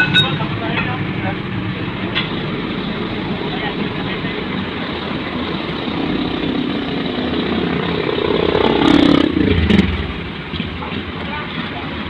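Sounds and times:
street traffic: 0:00.0 - 0:12.0
vehicle passing close: 0:00.4 - 0:11.3.

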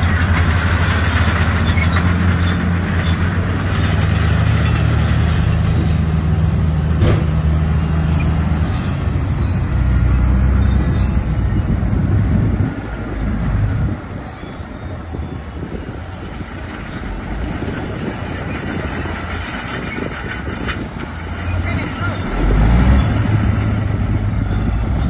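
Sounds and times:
heavy diesel engine running: 0:00.0 - 0:25.0
sharp knock: 0:07.0 - 0:07.4.

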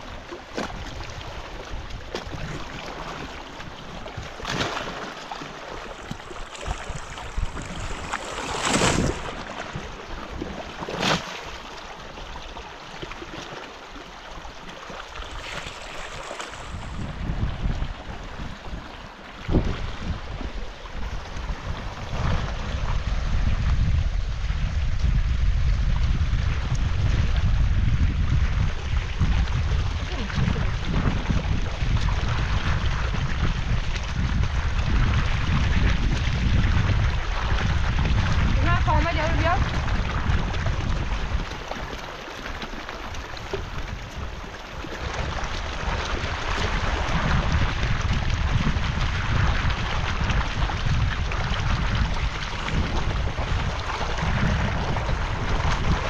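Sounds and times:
river rushing: 0:05.2 - 0:09.8, 0:15.2 - 0:17.4
wind buffeting microphone: 0:05.7 - 0:11.2, 0:15.3 - 0:56.0.

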